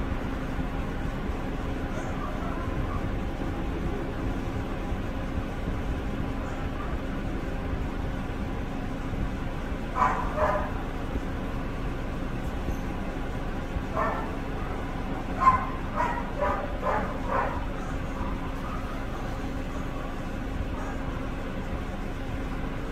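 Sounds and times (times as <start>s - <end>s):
steady low hum: 0.0s - 22.9s
dog barking: 10.0s - 10.8s, 13.9s - 20.2s, 20.8s - 21.1s.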